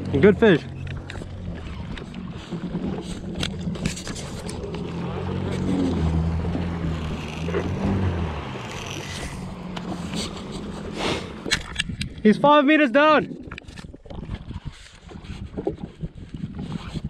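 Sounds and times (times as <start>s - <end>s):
jet ski engines humming: 0.0s - 13.4s
water wash: 0.0s - 13.9s
wind: 0.0s - 17.0s.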